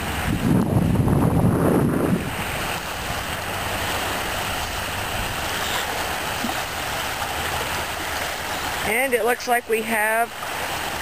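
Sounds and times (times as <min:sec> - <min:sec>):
wind buffeting microphone: 0:00.0 - 0:06.6
wind: 0:00.0 - 0:11.0
small waves lapping: 0:02.0 - 0:11.0.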